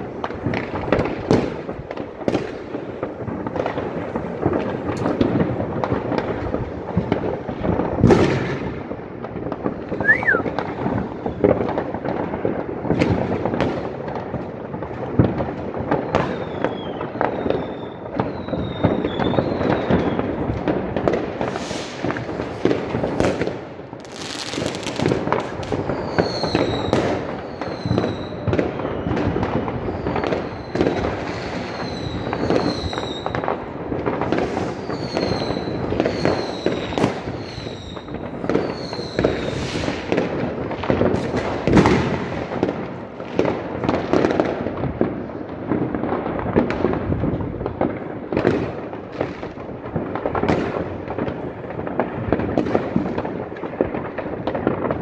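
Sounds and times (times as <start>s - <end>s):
firecrackers crackling and banging: 0.0s - 55.0s
falling firework whistle: 9.9s - 11.5s, 16.0s - 20.4s, 21.4s - 23.3s, 24.1s - 33.4s, 34.3s - 40.1s.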